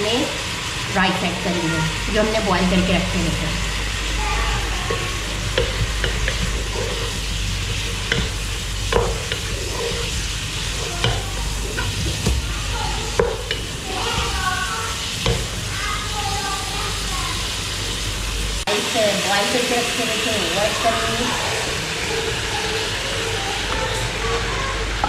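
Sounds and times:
food sizzling while frying: 0:00.0 - 0:25.0
wooden spoon scraping a pot: 0:04.6 - 0:15.6
spoon knocking against pot: 0:08.0 - 0:10.1, 0:10.9 - 0:12.4.

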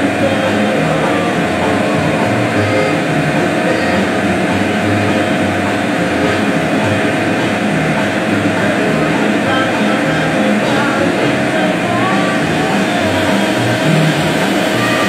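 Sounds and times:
machinery rushing hum: 0:00.0 - 0:15.0
mid-pitched machine whine: 0:00.0 - 0:15.0.

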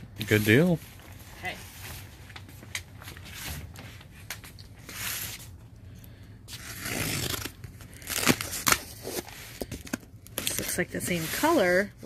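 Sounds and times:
cardboard box tearing: 0:06.6 - 0:09.3.

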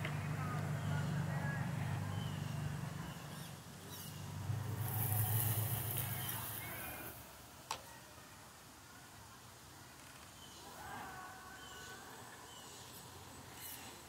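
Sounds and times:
electric motor and gears running: 0:02.0 - 0:07.2.

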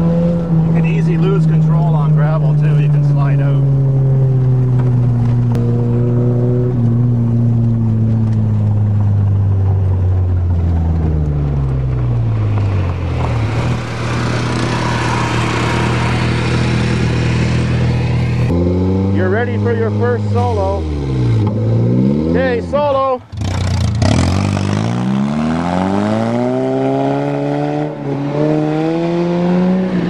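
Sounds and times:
car engine from inside cabin: 0:00.0 - 0:22.3
loud rushing noise: 0:12.4 - 0:19.1.

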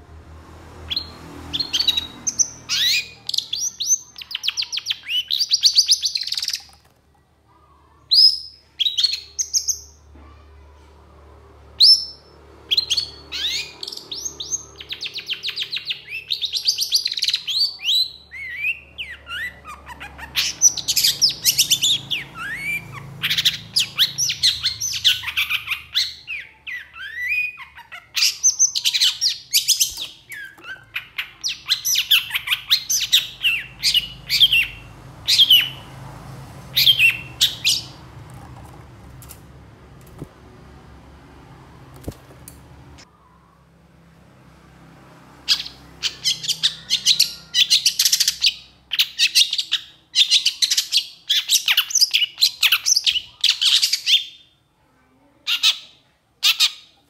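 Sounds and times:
bird singing chattering notes: 0:12.8 - 0:35.9, 0:36.8 - 0:38.0.

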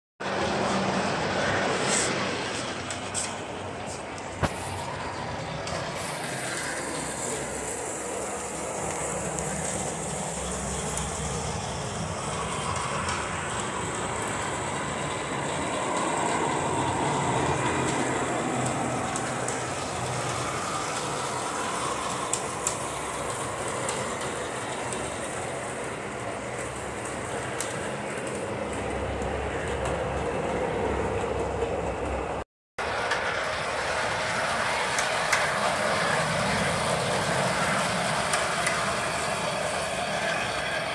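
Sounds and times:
wheels clicking over rails: 0:00.2 - 0:40.9
toy train motor whirring: 0:05.6 - 0:18.1, 0:19.0 - 0:28.8.

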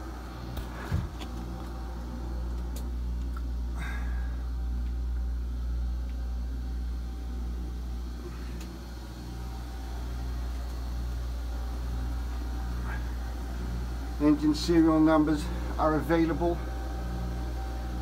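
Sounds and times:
low machinery hum: 0:00.0 - 0:18.0.

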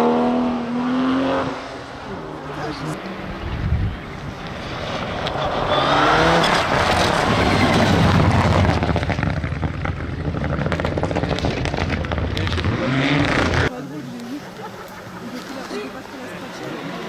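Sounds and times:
rally car engine at high revs: 0:00.0 - 0:03.0, 0:04.6 - 0:13.7.

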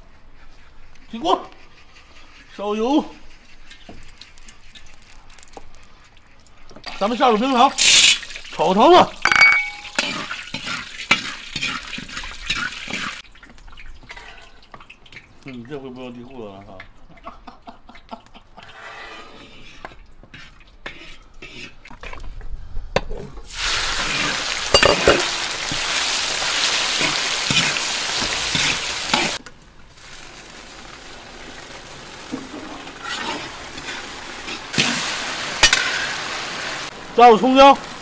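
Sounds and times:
meat sizzling in hot oil: 0:03.4 - 0:13.2, 0:23.5 - 0:38.0
metal ladle scraping wok: 0:24.0 - 0:25.7, 0:32.3 - 0:34.9.

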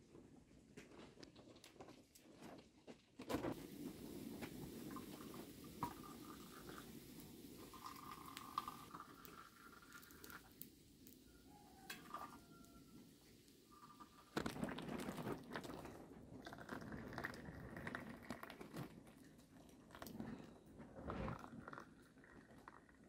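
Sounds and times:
tea pouring into glasses: 0:03.6 - 0:12.7, 0:13.7 - 0:20.2, 0:21.3 - 0:23.0.

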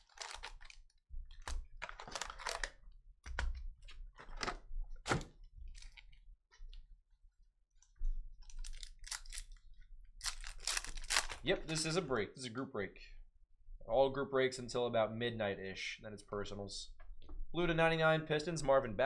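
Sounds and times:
foil packs crinkling: 0:00.0 - 0:02.8, 0:08.6 - 0:09.6, 0:10.2 - 0:11.9.

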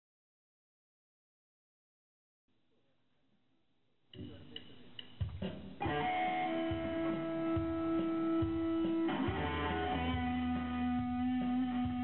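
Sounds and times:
electric bass: 0:05.8 - 0:12.0
electric guitar: 0:05.8 - 0:12.0.

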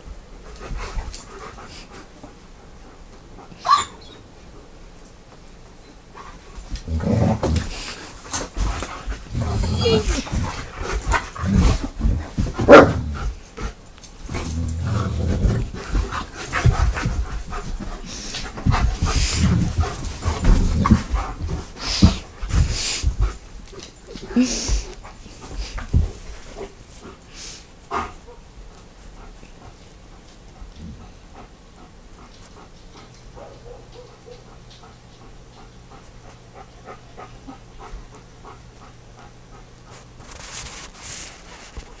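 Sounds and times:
rustling hiss: 0:06.1 - 0:23.7, 0:24.3 - 0:28.2
dogs play-growling: 0:06.2 - 0:27.3
dogs panting: 0:07.6 - 0:40.4.

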